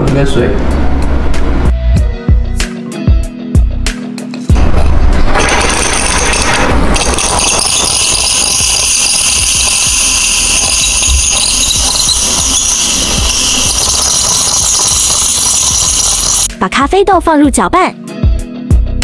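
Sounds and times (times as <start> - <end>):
espresso machine steam wand hissing: 6.4 - 16.5.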